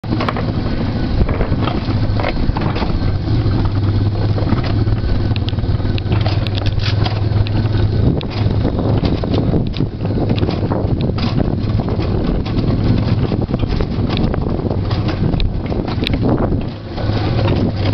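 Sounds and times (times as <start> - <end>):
clicks and rattles: 0.0 - 0.6, 1.2 - 17.9
coaster wheels rumbling: 0.0 - 17.9.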